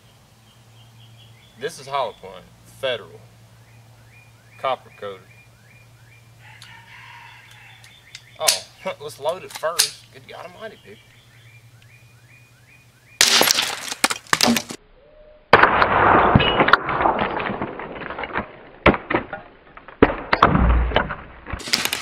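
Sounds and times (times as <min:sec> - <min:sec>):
rifle shots: 0:13.2 - 0:14.0
bone fragments knocking: 0:13.2 - 0:14.8, 0:16.3 - 0:22.0.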